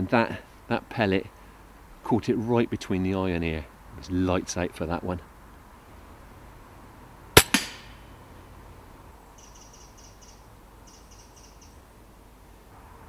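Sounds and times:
pellet impact smack: 0:07.4 - 0:08.0
air rifle shot: 0:07.4 - 0:08.1
bird chirping: 0:09.4 - 0:11.8.

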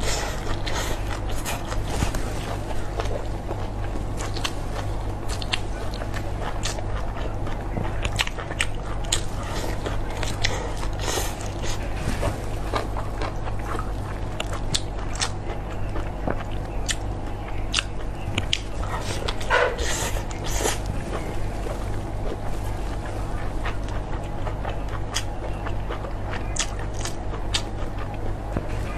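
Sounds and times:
person chewing food: 0:00.0 - 0:28.9
steady low hum: 0:00.0 - 0:28.9.

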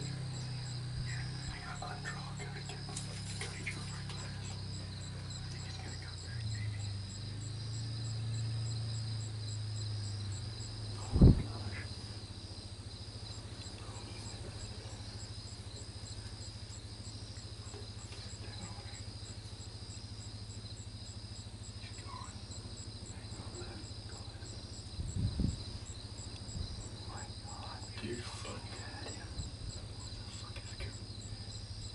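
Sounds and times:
low hum: 0:00.0 - 0:31.9
night insects chirping: 0:00.0 - 0:31.9
faint high steady tone: 0:20.5 - 0:24.5.

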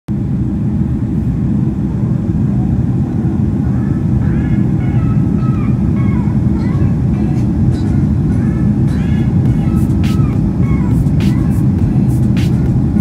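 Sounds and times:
aircraft cabin engine rumble: 0:00.1 - 0:13.0
faint voices: 0:01.5 - 0:11.8.

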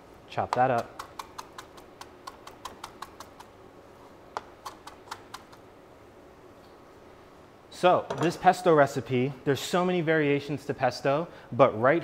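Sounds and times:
knife chopping on cutting board: 0:00.5 - 0:03.5.

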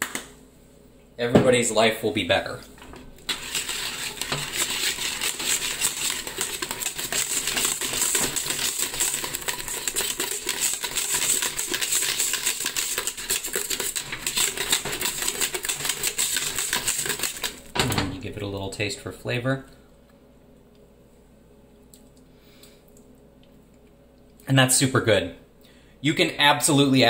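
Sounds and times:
whisk scraping a steel pot: 0:02.9 - 0:17.7.

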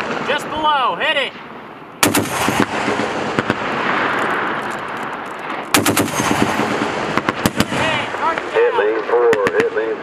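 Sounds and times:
single gunshot: 0:02.0 - 0:03.7, 0:05.7 - 0:08.1
machine gun burst: 0:02.0 - 0:04.5, 0:05.7 - 0:08.0
rolling gunshot echo: 0:02.0 - 0:04.6, 0:05.4 - 0:08.6.

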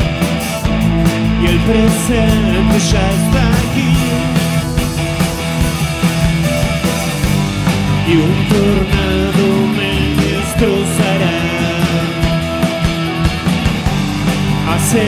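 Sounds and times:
drum kit: 0:00.0 - 0:15.0
electric guitar: 0:00.0 - 0:15.0
synth keyboards: 0:00.0 - 0:15.0
man singing: 0:01.4 - 0:04.9, 0:08.0 - 0:12.6, 0:14.6 - 0:15.0.

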